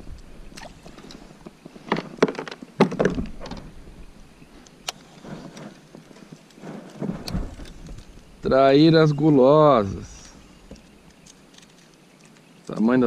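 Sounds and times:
hollow thumps of gear on kayak: 0:01.4 - 0:03.8.

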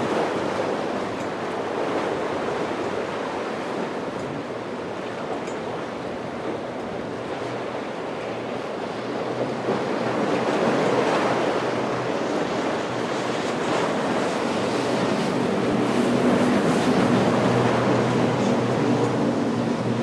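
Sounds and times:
boat outboard motors droning: 0:00.0 - 0:20.0
rush of bow wake: 0:00.0 - 0:20.0
surf: 0:00.0 - 0:20.0.

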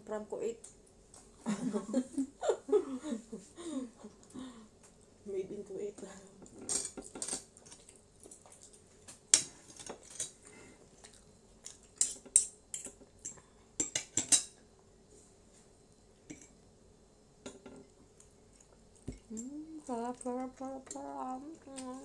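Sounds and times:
cutlery clinking on plates: 0:06.6 - 0:07.5, 0:13.8 - 0:14.6.

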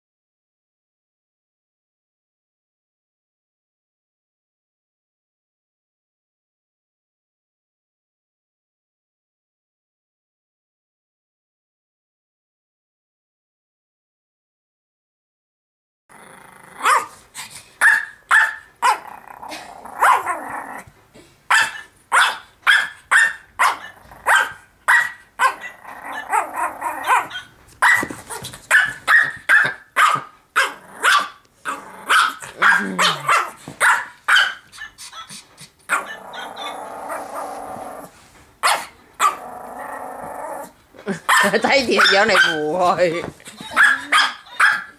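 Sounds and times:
dog growling: 0:16.1 - 0:17.2, 0:18.8 - 0:21.3, 0:23.8 - 0:24.4, 0:25.4 - 0:27.3, 0:30.6 - 0:33.6, 0:35.3 - 0:38.2, 0:39.2 - 0:41.2
small dog yapping: 0:16.8 - 0:17.2, 0:17.8 - 0:20.6, 0:21.5 - 0:39.4, 0:41.3 - 0:42.7, 0:43.4 - 0:44.9.

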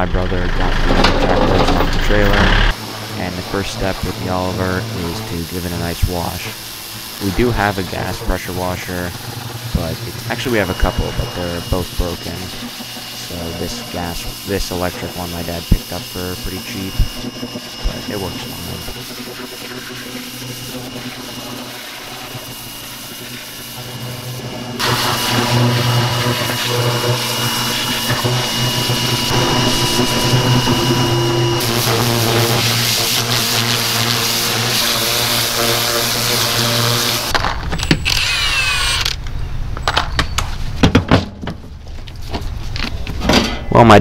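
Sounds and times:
pressure washer motor hum: 0:00.0 - 0:39.2
spray hissing: 0:02.2 - 0:37.3.

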